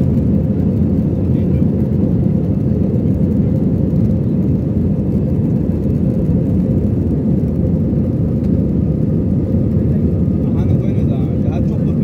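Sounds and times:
airplane rolling on ground: 0.0s - 12.0s
jet engines rumbling: 0.0s - 12.0s.

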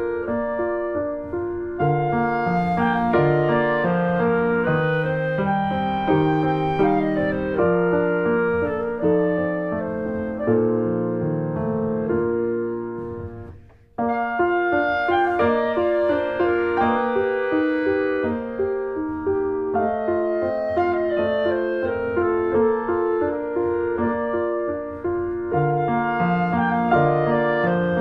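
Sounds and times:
slow piano melody: 0.0s - 28.0s.

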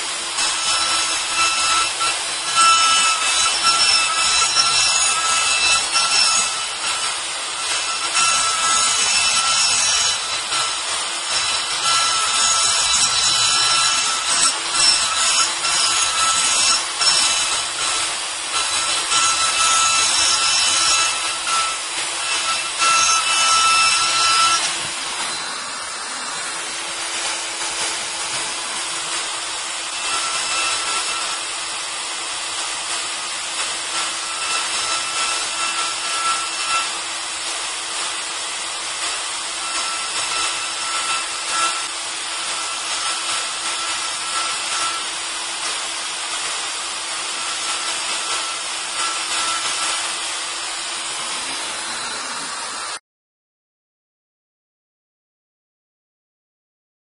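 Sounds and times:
router cutting material: 0.0s - 53.0s
motor whine: 22.6s - 30.0s, 50.8s - 53.0s.

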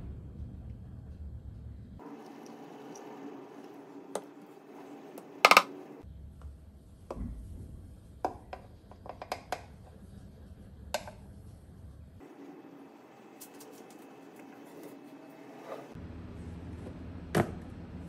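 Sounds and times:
pitcher and cup clicking: 5.3s - 5.8s.

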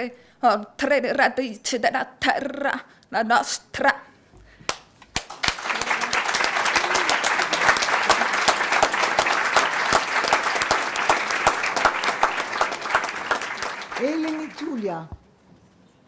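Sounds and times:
audience applause: 5.2s - 15.1s.

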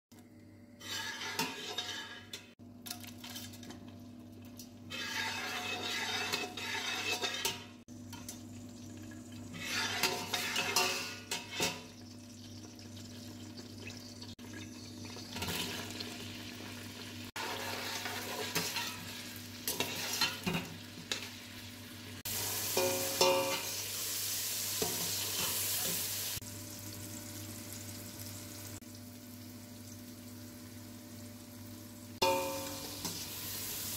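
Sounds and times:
onions sizzling in hot oil: 4.9s - 33.9s
spoon clinking against metal pot: 32.2s - 33.2s.

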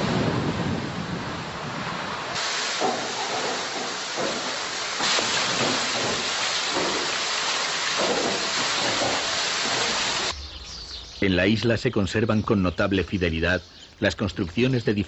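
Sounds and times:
water rushing through wooden flume: 0.0s - 10.3s.

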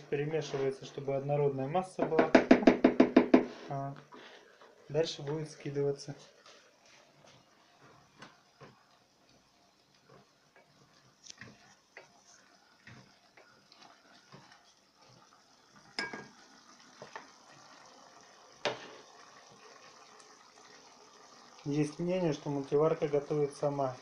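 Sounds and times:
spatula knocking against pot: 2.0s - 3.5s
faint hiss of cooking meat: 3.4s - 24.0s.

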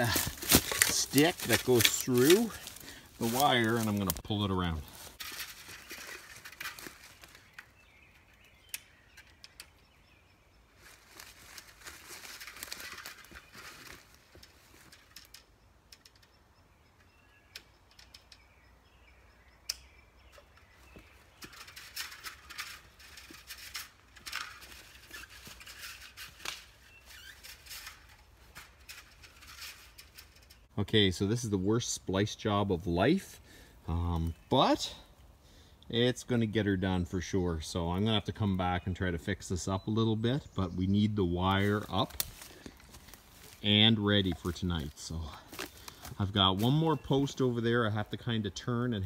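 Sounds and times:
walking through undergrowth: 0.0s - 8.1s, 10.7s - 15.3s, 20.6s - 30.4s, 41.2s - 47.4s
sharp clicks: 19.6s - 20.6s.

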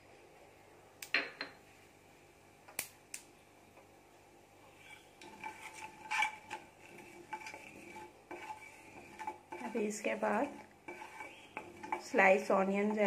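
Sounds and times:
wooden spatula scraping metal pan: 4.7s - 13.0s.

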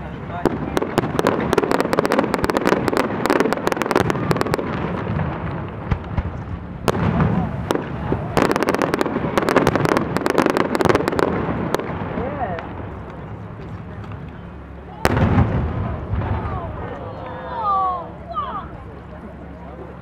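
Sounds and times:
aerial fireworks bursting: 0.0s - 13.0s, 15.0s - 16.9s
ground fireworks crackling: 0.0s - 20.0s.

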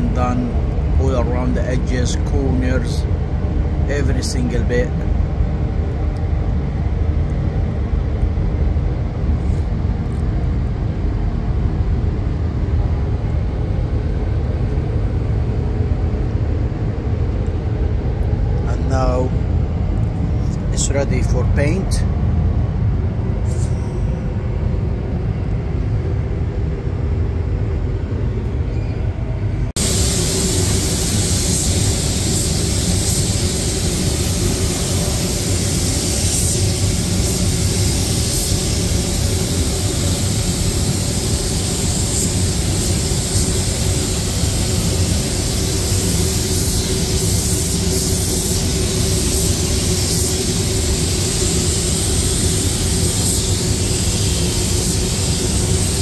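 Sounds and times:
paint spray gun hissing: 29.8s - 56.0s.

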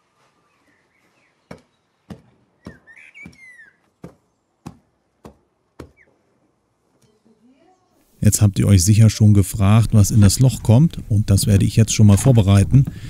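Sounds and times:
bird chirping: 0.4s - 4.7s, 5.8s - 6.2s.

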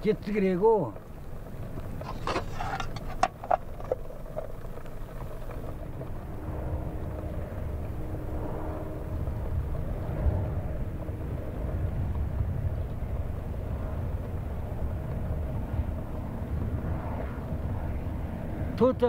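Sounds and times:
low rumble with faint hum: 0.0s - 19.0s
metal pot and lid clinking: 2.0s - 4.0s.

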